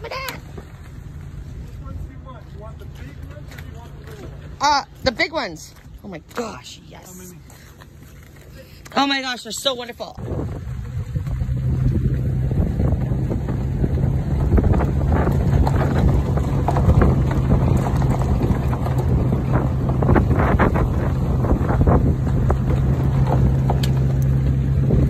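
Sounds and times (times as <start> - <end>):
vehicle engine humming: 0.0 - 25.0
wind buffeting microphone: 10.2 - 25.0.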